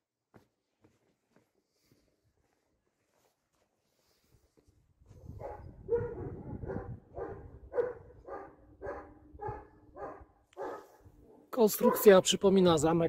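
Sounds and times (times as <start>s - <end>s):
dog barking: 5.3s - 12.2s.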